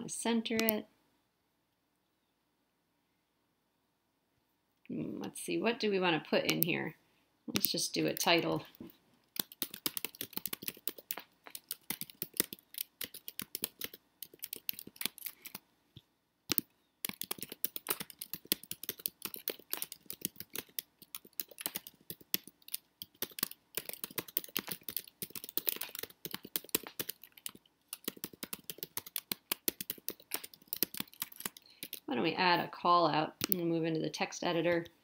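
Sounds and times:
fast typing on keyboard: 0:06.5 - 0:06.7, 0:07.5 - 0:08.7, 0:09.3 - 0:15.6, 0:16.5 - 0:32.1.

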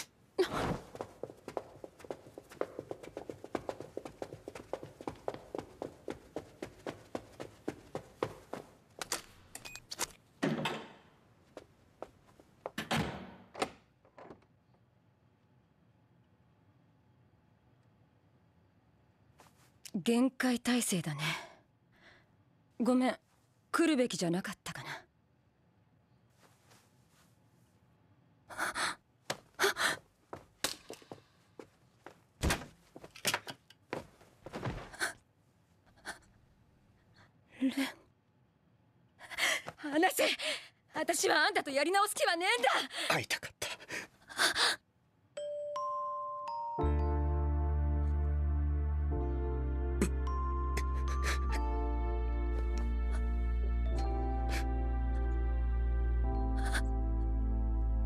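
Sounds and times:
footsteps on hard floor: 0:00.7 - 0:08.8.

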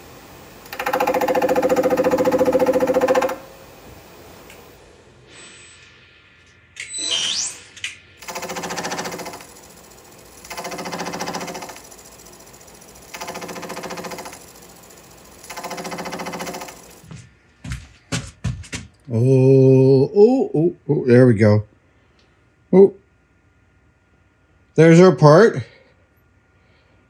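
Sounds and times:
short rising whine: 0:04.8 - 0:08.2.

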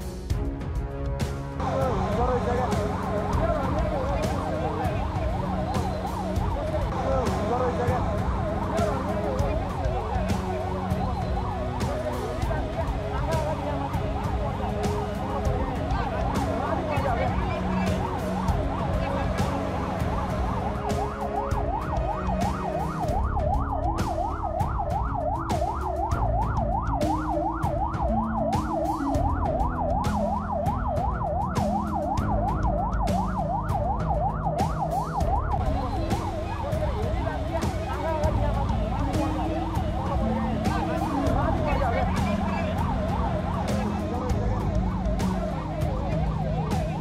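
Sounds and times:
emergency vehicle siren: 0:01.6 - 0:47.0
low rumble: 0:12.4 - 0:34.6.

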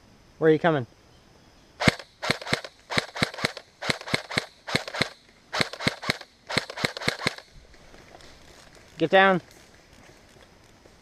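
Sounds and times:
airsoft rifle firing bursts: 0:01.8 - 0:07.5.

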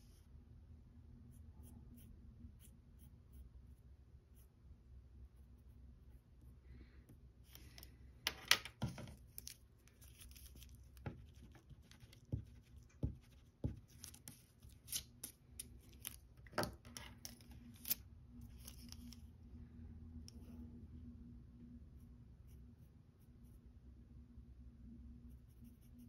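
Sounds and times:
pencil scratching on paper: 0:01.3 - 0:04.5, 0:10.0 - 0:15.0, 0:25.3 - 0:26.0.

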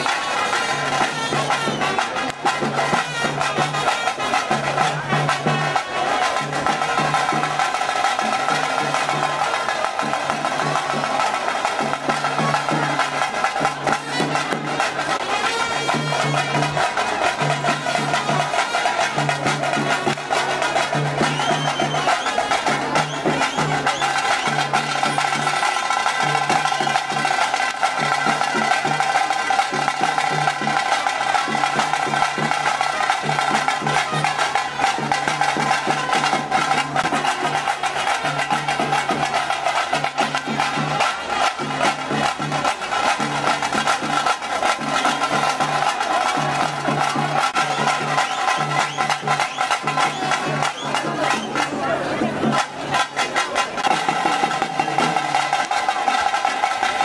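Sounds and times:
fast dense drumming: 0:00.8 - 0:57.0
held horn melody: 0:14.0 - 0:19.3.

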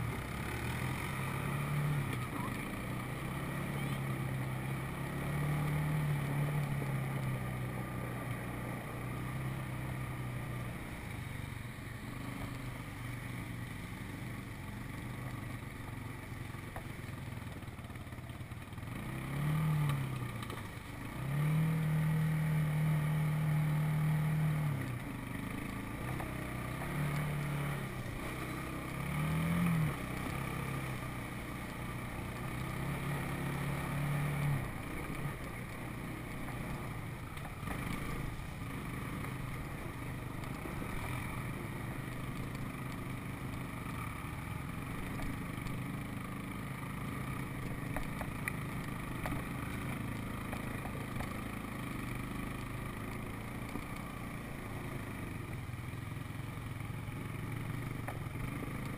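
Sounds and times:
atv engine revving: 0:00.0 - 0:58.9.

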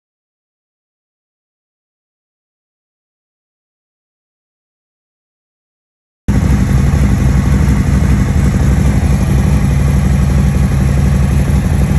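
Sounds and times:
motorcycle engine idling: 0:06.3 - 0:11.9.

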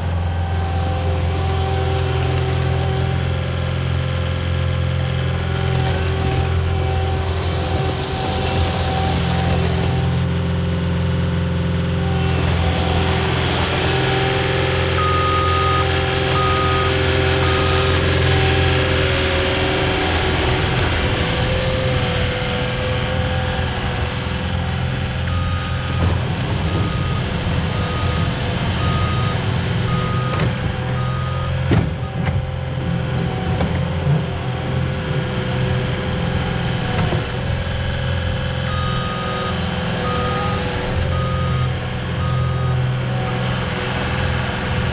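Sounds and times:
diesel engine running: 0:00.0 - 0:44.9
backup alarm beeping: 0:15.0 - 0:17.9.

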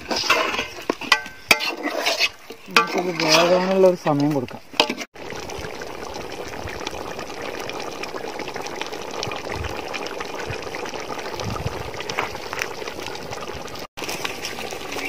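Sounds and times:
stew bubbling and sizzling: 0:00.0 - 0:15.0.

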